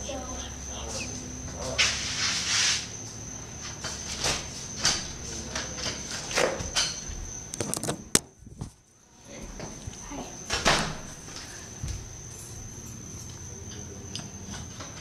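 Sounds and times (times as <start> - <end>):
insects droning: 0.0 - 15.0
footsteps on concrete floor: 6.4 - 7.4, 8.4 - 10.1, 11.2 - 12.2.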